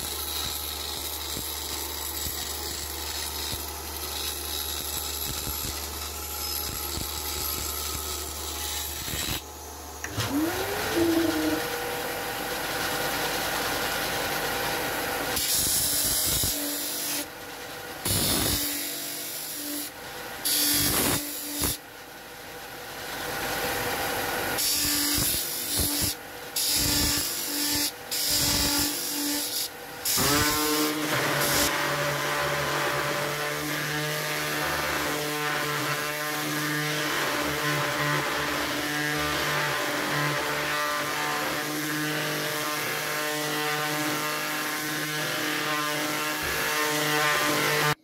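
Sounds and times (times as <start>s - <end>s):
orbital sander whining: 5.3s - 13.2s.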